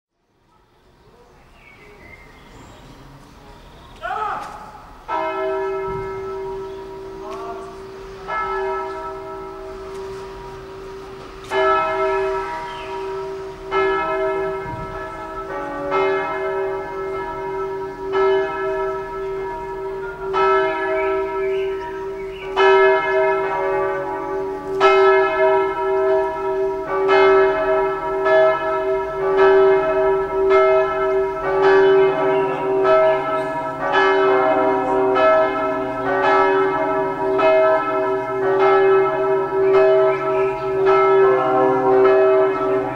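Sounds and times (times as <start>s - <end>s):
church bells pealing: 4.8s - 42.9s.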